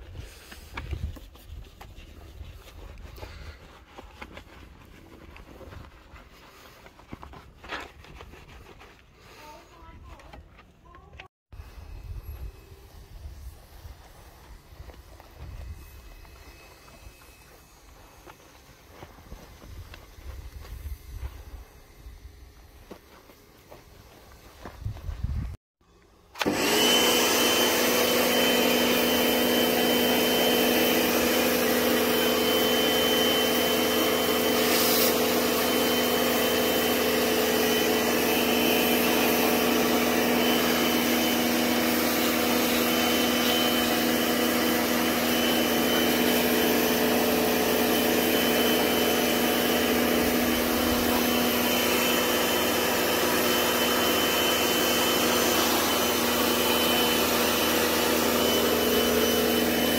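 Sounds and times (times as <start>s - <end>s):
electric motor whining: 26.4s - 59.9s
hiss: 34.6s - 36.0s.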